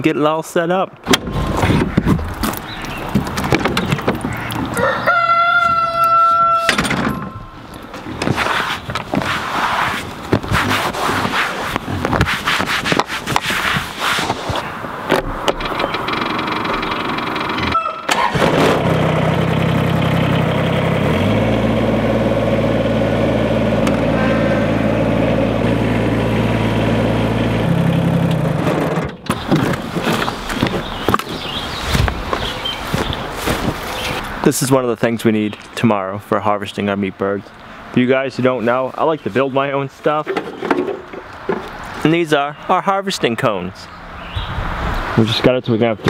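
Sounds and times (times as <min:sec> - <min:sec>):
handling rustling and knocking: 0:01.1 - 0:04.8, 0:06.7 - 0:17.7, 0:28.7 - 0:34.3, 0:40.2 - 0:42.0
tractor engine running: 0:15.2 - 0:34.4.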